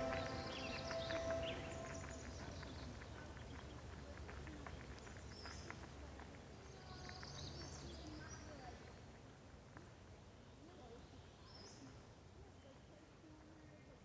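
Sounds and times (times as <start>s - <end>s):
held music note: 0.0s - 2.5s.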